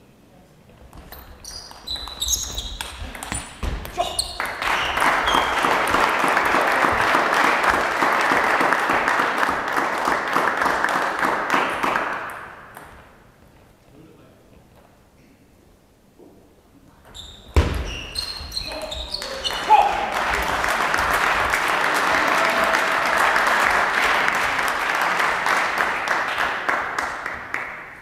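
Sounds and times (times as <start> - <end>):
spectators applauding: 4.4 - 12.5, 18.7 - 28.0.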